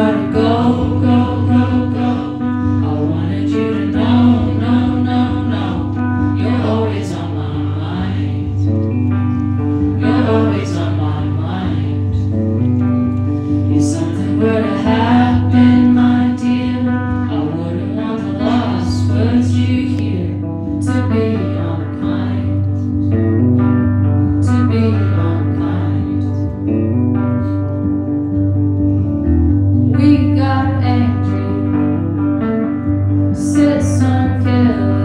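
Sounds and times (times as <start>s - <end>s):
woman singing: 0.0s - 8.8s, 9.9s - 12.4s, 13.6s - 23.0s, 24.4s - 26.5s, 30.0s - 32.2s, 33.3s - 35.0s
guitar playing: 0.0s - 35.0s.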